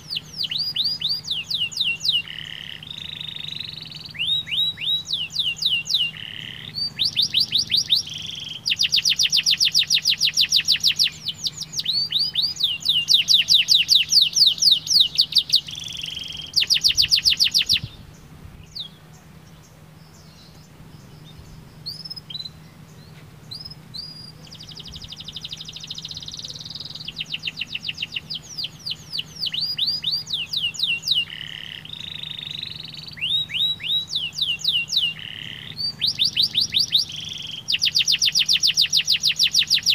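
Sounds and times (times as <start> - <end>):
canary short chirps: 0.0 - 18.0, 21.8 - 39.9
canary singing trills: 0.0 - 39.9.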